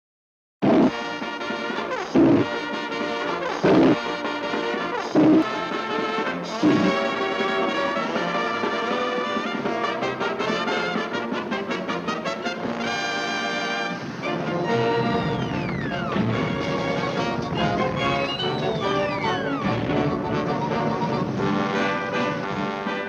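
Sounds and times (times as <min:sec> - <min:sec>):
orchestral brass music: 0:00.6 - 0:23.0
loud orchestral hits: 0:05.5 - 0:23.0.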